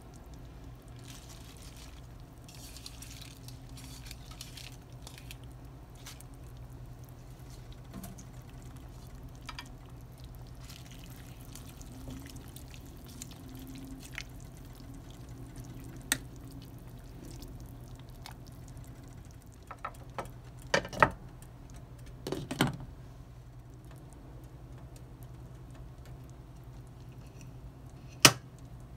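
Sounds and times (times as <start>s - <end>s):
wet sloshing of leaves in broth: 0.0s - 19.3s
steady low hum: 0.0s - 28.9s.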